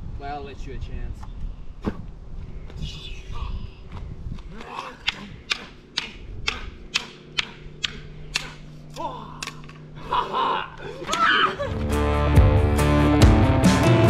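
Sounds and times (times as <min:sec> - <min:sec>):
wooden sticks clacking: 0:04.4 - 0:09.9, 0:11.0 - 0:11.4
people shouting: 0:04.5 - 0:11.7
rock music: 0:11.8 - 0:14.0.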